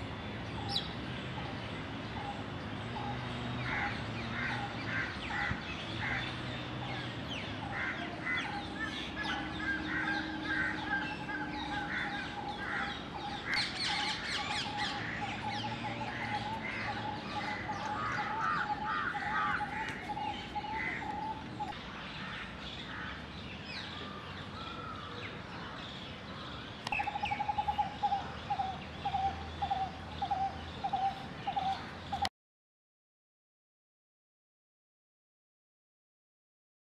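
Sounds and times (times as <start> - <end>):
birds chirping: 0.0 - 32.3
crows cawing: 3.7 - 6.3, 7.6 - 21.4.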